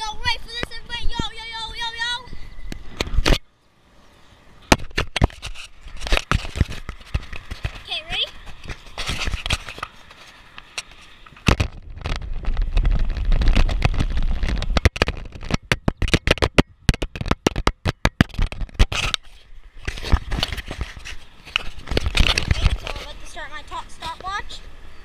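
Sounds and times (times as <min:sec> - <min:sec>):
wind rumbling on microphone: 0:00.0 - 0:25.0
camera handling knocks and clicks: 0:13.5 - 0:19.2.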